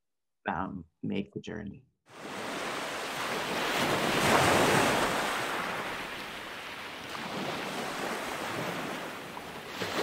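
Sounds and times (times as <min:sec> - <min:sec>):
ocean waves washing: 0:02.1 - 0:10.0.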